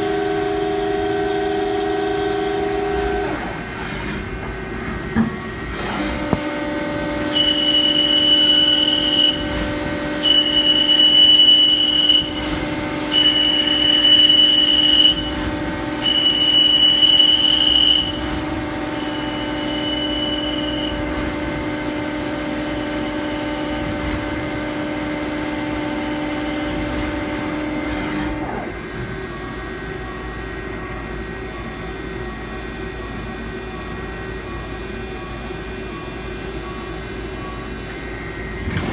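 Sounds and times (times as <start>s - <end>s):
lathe high whine: 0.0s - 32.8s.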